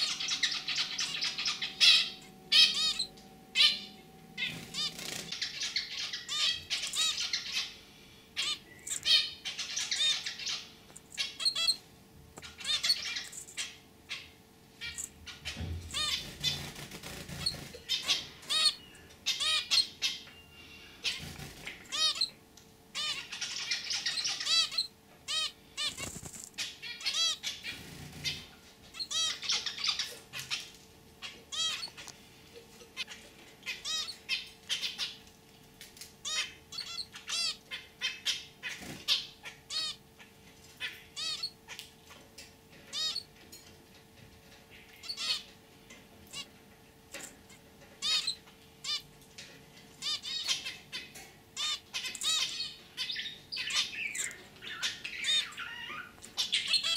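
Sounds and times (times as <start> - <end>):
finches calling: 0.0 - 11.8, 12.4 - 16.7, 17.3 - 30.6, 31.2 - 32.1, 36.2 - 40.0, 40.8 - 42.2, 42.9 - 43.3, 48.0 - 49.0, 50.0 - 56.9.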